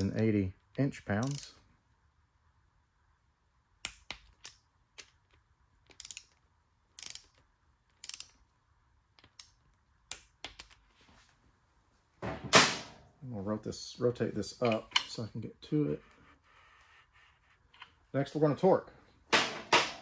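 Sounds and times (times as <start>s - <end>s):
torque wrench clicking: 1.2s - 1.6s, 5.8s - 8.4s.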